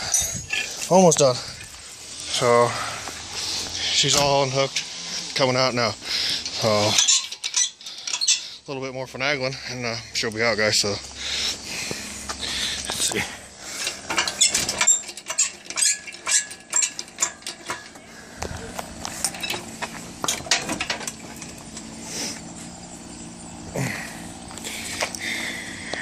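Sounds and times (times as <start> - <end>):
metal clinking and rattling: 0.0 - 1.2, 6.4 - 8.5, 12.8 - 18.1, 18.7 - 22.0.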